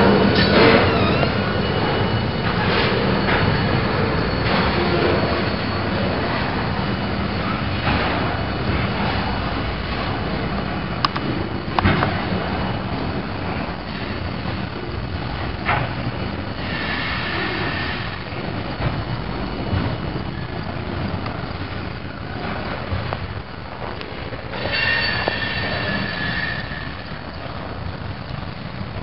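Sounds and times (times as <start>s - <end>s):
high wheel squeal: 0.0s - 29.0s
train wheels rumbling and clicking: 0.0s - 29.0s.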